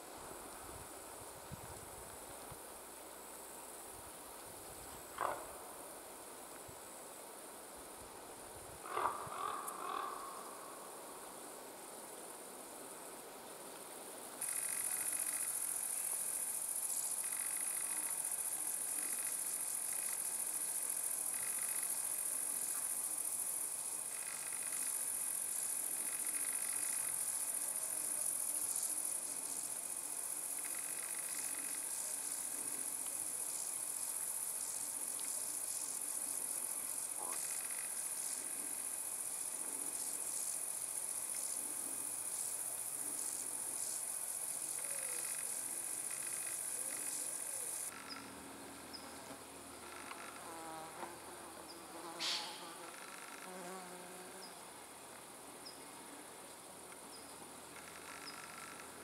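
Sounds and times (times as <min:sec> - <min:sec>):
insects chirring: 0:00.1 - 0:59.0
faint bird calls: 0:08.8 - 0:10.8.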